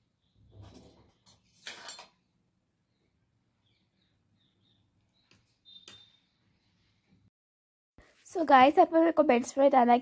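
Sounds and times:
faint high chirps: 2.9s - 6.7s.

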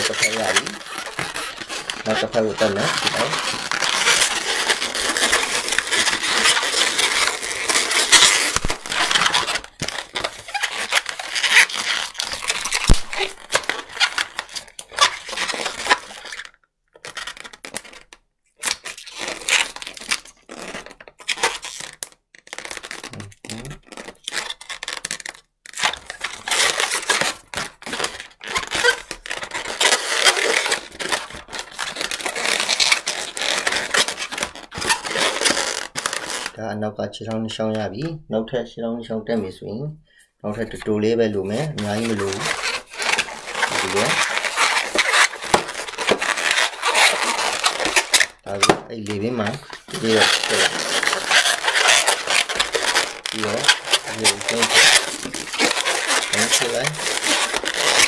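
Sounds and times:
balloon rubbing and crackling: 0.0s - 38.2s, 40.4s - 58.0s.

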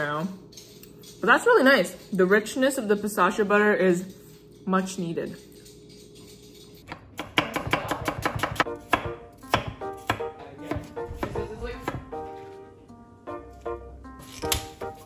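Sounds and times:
knife chopping on wooden board: 6.9s - 12.5s, 14.2s - 15.0s.

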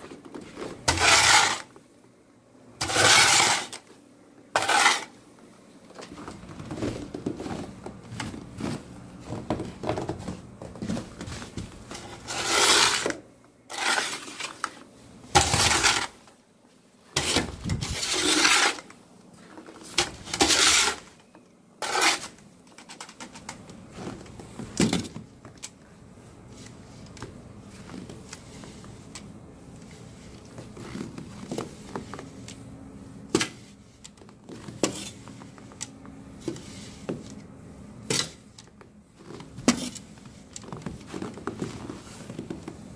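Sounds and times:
snow shovel scraping: 0.6s - 1.7s, 2.8s - 3.9s, 4.6s - 5.2s, 11.9s - 14.7s, 15.4s - 16.2s, 17.2s - 18.9s, 20.2s - 21.1s, 21.8s - 22.4s.

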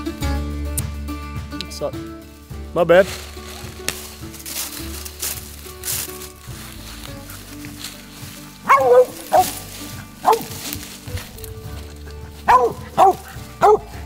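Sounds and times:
dog barking: 8.6s - 9.6s, 10.2s - 10.6s, 12.4s - 14.0s.

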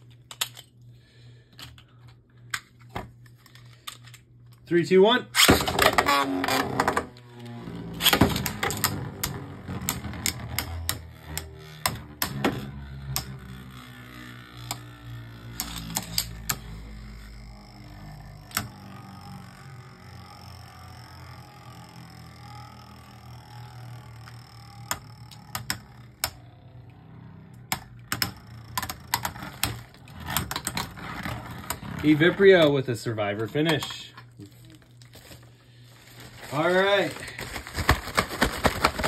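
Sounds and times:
spinning tops whirring: 5.4s - 34.1s.

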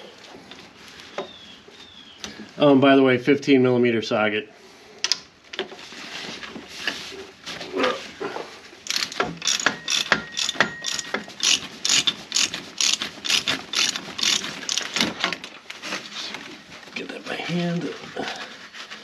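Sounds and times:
hand ratchet clicking: 8.8s - 15.1s.

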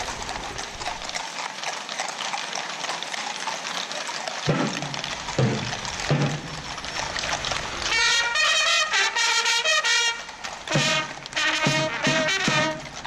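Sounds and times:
horse hooves clattering on street: 0.0s - 13.0s.

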